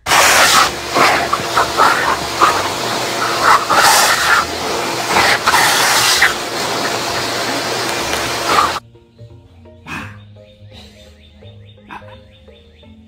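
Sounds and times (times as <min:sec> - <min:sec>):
leaf blower running: 0:00.0 - 0:08.8.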